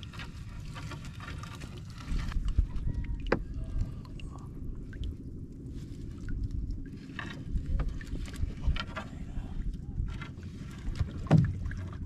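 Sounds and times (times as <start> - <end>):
wet net being hauled: 0.0 - 4.1, 4.8 - 12.0
steady low rumble: 0.0 - 12.0
water dripping and splashing: 0.8 - 8.9
knocks against boat hull: 11.2 - 11.7.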